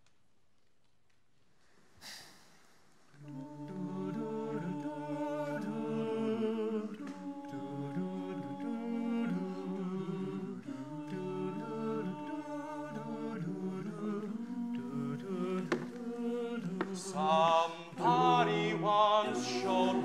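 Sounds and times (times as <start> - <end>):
a cappella group singing: 3.2 - 20.0
soft knock: 15.7 - 15.9.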